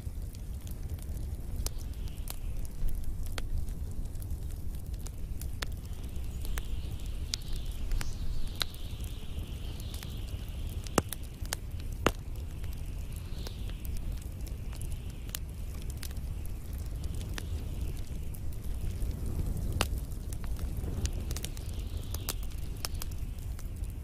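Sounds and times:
fire crackling and popping: 0.0s - 24.0s
flames burning: 0.0s - 24.0s
soft hiss: 0.0s - 24.0s.

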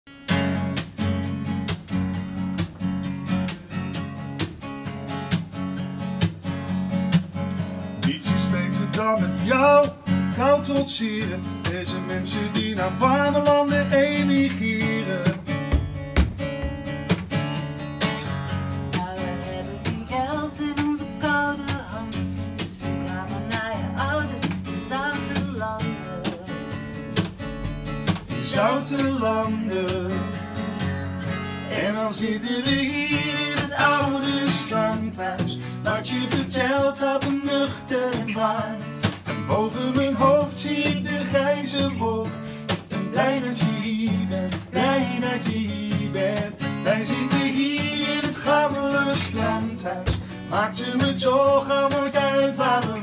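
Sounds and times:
acoustic guitar strumming: 0.1s - 53.0s
woman singing: 18.9s - 26.9s, 31.7s - 38.9s, 43.1s - 46.4s, 47.1s - 53.0s.

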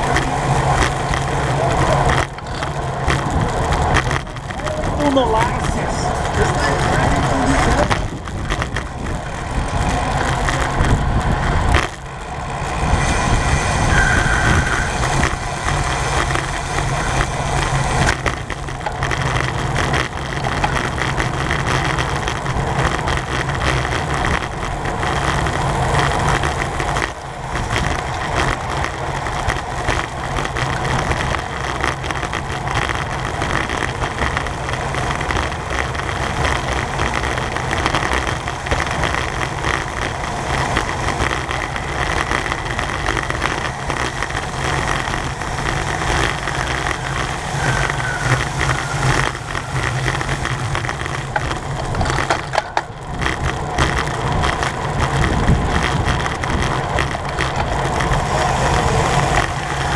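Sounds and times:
heavy low rumble: 0.0s - 59.9s
road noise: 0.0s - 59.9s
wind rushing: 4.9s - 18.2s.

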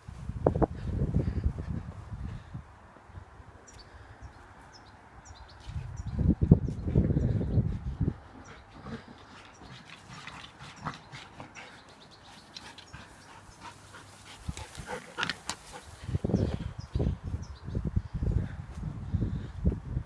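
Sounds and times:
dog making play noises: 8.4s - 16.0s.

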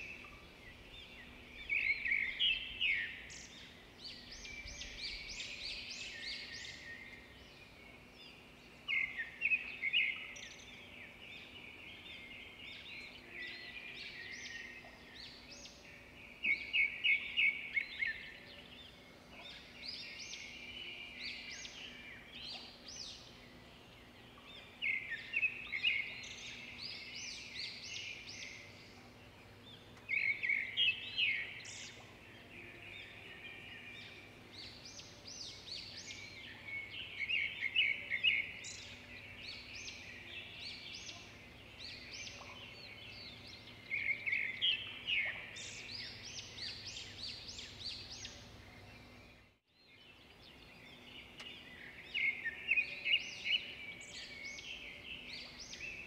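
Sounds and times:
faint background hiss: 0.0s - 56.0s
songbird chirping: 0.0s - 56.0s.

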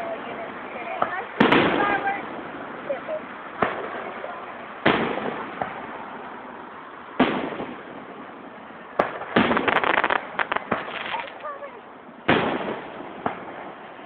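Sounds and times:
small firework pops: 3.6s - 4.0s, 9.0s - 11.5s, 12.3s - 13.5s
firework shells booming: 4.8s - 5.9s, 7.2s - 8.3s, 9.0s - 11.5s, 12.2s - 13.7s.

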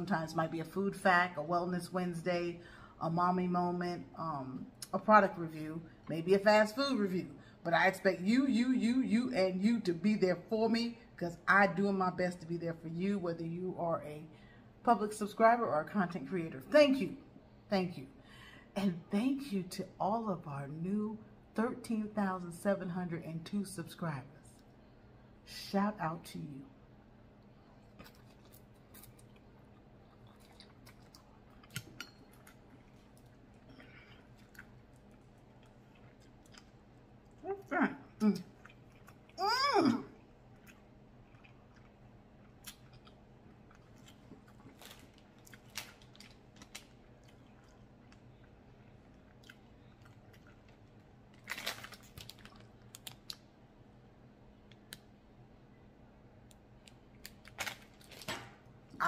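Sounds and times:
chewing and mouth clicks: 27.4s - 39.4s, 40.2s - 53.5s
plastic packet crinkling: 44.1s - 47.4s, 50.0s - 53.4s, 57.2s - 58.5s
light crackles and clicks: 49.4s - 53.5s, 54.6s - 55.1s.

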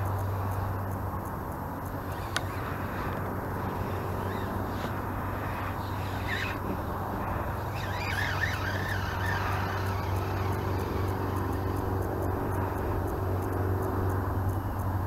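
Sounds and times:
low mechanical drone: 0.0s - 15.0s
wavering chirps: 1.9s - 12.8s.

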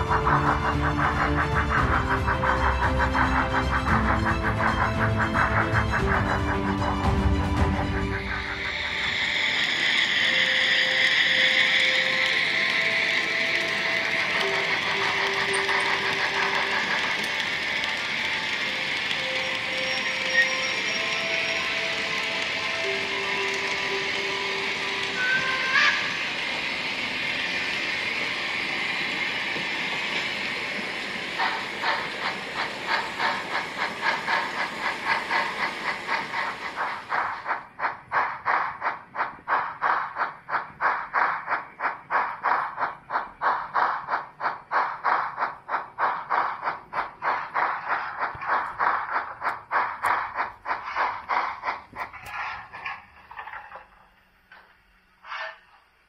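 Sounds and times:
model train hissing: 0.0s - 56.0s
model train wheels clicking: 0.0s - 56.0s.

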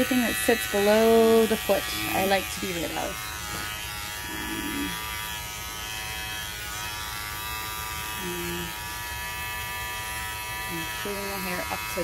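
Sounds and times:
electric clippers buzzing: 0.0s - 12.0s.

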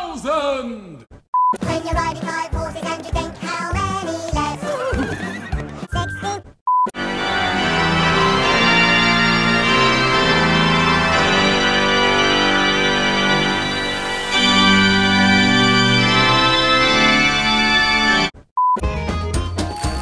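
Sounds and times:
sustained organ-like keyboard chords: 7.0s - 18.3s.

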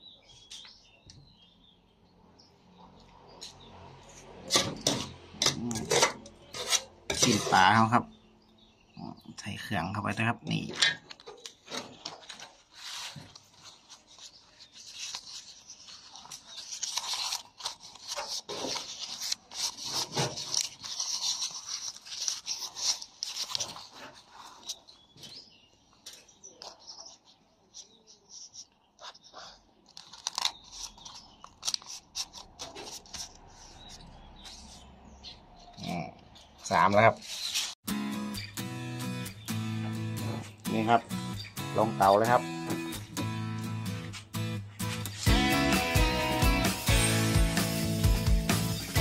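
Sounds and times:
banana leaves rustling: 11.8s - 24.8s
small leaf crackles: 12.2s - 24.8s, 29.9s - 33.4s.

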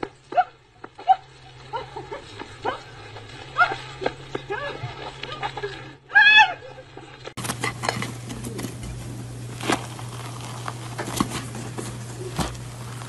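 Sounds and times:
steady low hum: 0.0s - 13.0s
cake tearing crackle: 9.3s - 13.0s.

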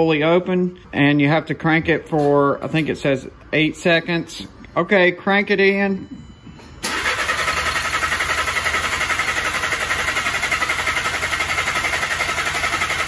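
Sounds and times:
starter cranking an engine: 6.8s - 13.0s.

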